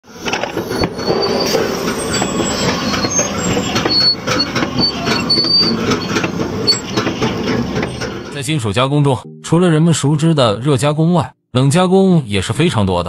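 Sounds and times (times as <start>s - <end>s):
steady mechanical noise: 0.0s - 8.4s
metal-on-metal squeaks: 0.1s - 8.4s.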